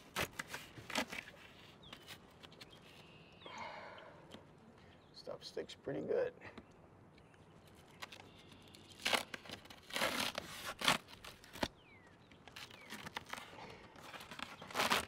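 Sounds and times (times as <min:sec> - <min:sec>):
sticky membrane ripping: 0:08.0 - 0:11.8, 0:12.5 - 0:15.0.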